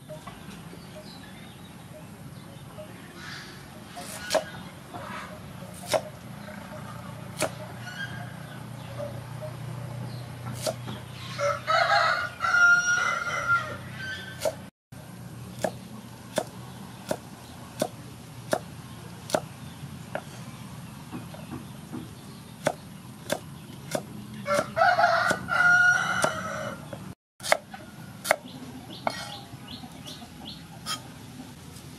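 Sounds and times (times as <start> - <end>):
knife chopping on wooden board: 4.0 - 4.5, 5.8 - 6.1, 7.4 - 7.6, 10.5 - 11.0, 15.6 - 18.7, 19.3 - 19.5, 21.1 - 25.5, 27.4 - 28.4
rooster crowing: 11.2 - 14.3, 24.4 - 26.9.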